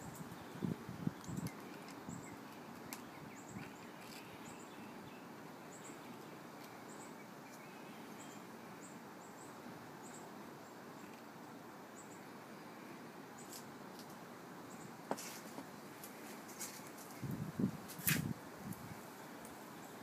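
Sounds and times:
steady outdoor background noise: 0.0s - 20.0s.

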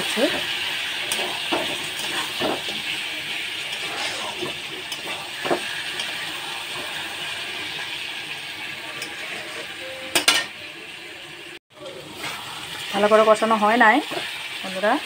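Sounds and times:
vegetables sizzling in oil: 0.0s - 15.0s
spatula scraping metal pan: 0.2s - 7.8s.

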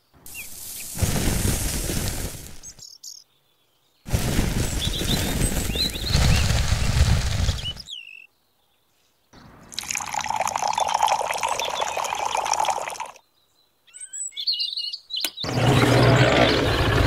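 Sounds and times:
noise: 0.0s - 3.1s, 4.1s - 8.0s
water pouring into tin can: 9.7s - 13.2s.

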